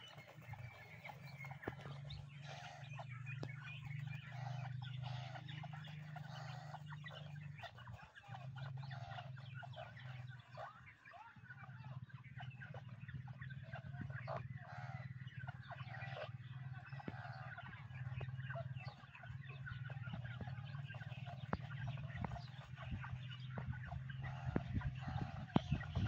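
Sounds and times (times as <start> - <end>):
birds giving short calls: 0.0 - 11.0, 12.4 - 26.0
steady low hum: 0.0 - 26.0.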